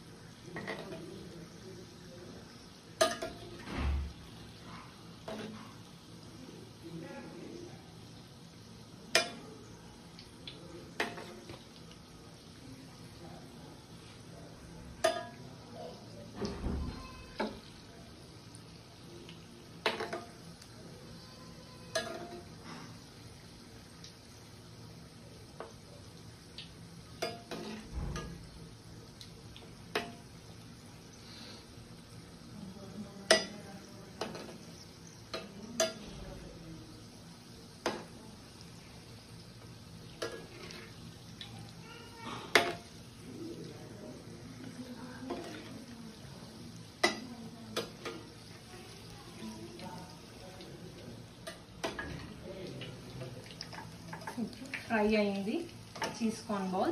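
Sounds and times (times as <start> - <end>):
oil frying sizzle: 0.0 - 56.9
metal spoon clinking on frying pan: 3.0 - 3.5, 9.1 - 9.4, 15.0 - 15.4, 21.9 - 22.5, 27.2 - 27.8, 33.3 - 33.6, 35.3 - 36.1, 47.0 - 48.3.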